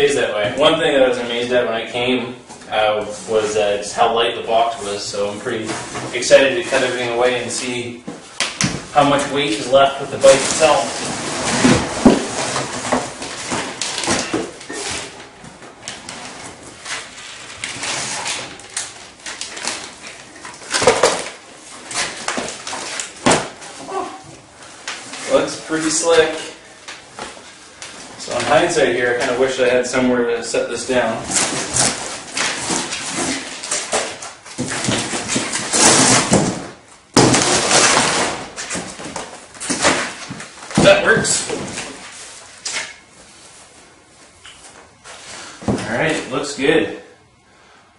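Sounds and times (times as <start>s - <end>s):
cardboard rustling and scraping: 4.7s - 24.1s, 31.0s - 43.8s.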